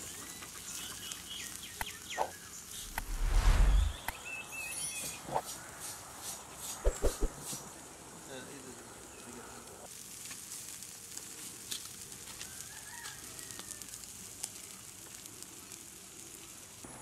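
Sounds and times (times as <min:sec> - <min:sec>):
charcoal fire crackling and sizzling: 0:00.0 - 0:17.0.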